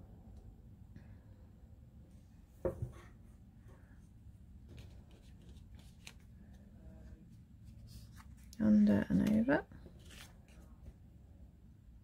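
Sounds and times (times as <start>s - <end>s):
soft knock: 2.6s - 3.1s.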